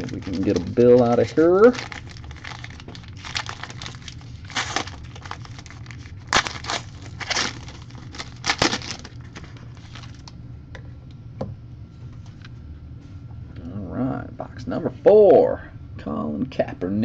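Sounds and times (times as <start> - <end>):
foil wrapper tearing and crinkling: 0.0 - 10.3.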